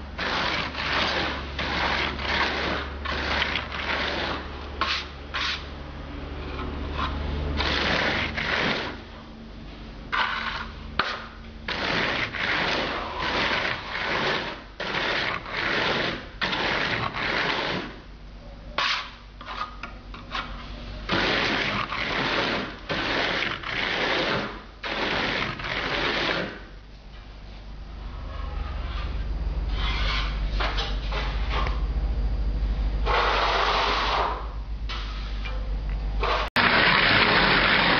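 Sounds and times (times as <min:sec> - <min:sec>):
plastic float rasping on render: 0:00.2 - 0:05.7, 0:06.5 - 0:09.0, 0:10.1 - 0:18.0, 0:18.8 - 0:26.7.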